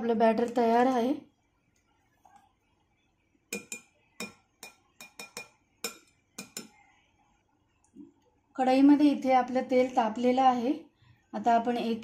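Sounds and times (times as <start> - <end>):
metal spoon clinking against bowl: 3.5 - 6.8.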